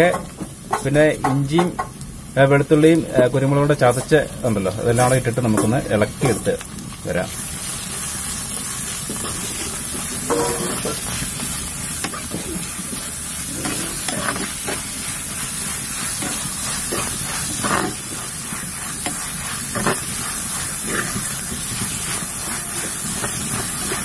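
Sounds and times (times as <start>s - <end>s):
vegetables sizzling in hot oil: 0.0s - 24.0s
steel ladle scraping a pan: 9.1s - 11.2s, 12.0s - 24.0s.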